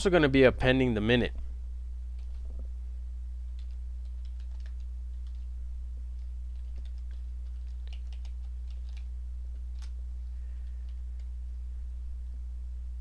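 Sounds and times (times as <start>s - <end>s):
low electrical hum: 0.0s - 13.0s
computer keyboard typing: 3.5s - 5.5s, 6.1s - 11.4s.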